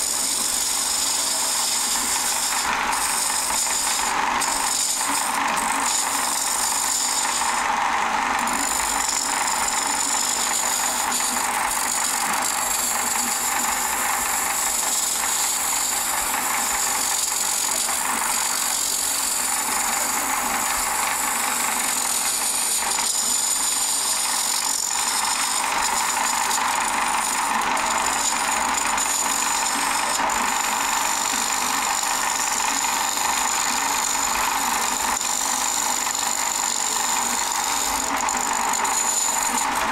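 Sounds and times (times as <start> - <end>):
gouge cutting wood hiss: 0.0 - 7.7
wood lathe whine: 0.0 - 39.9.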